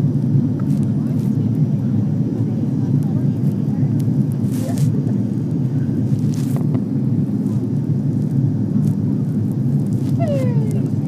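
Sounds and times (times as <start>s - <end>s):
airliner cabin roar: 0.0s - 11.0s.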